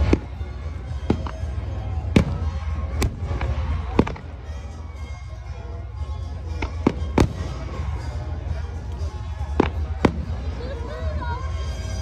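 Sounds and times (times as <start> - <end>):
fireworks bursting with sharp bangs: 0.0 - 5.2, 6.4 - 8.2, 9.0 - 10.7.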